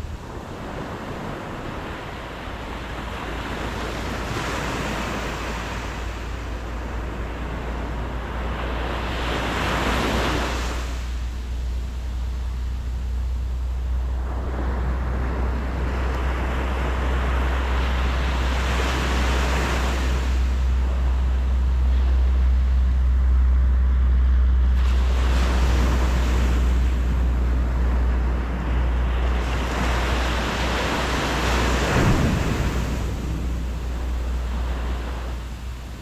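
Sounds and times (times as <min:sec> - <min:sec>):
steady low rumble: 0:00.0 - 0:36.0
waves breaking on a beach: 0:00.0 - 0:36.0.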